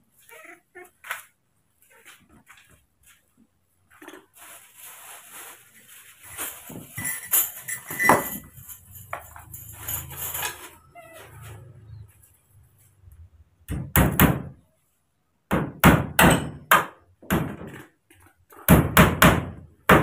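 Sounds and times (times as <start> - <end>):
spoon and plastic clattering: 6.4 - 10.9.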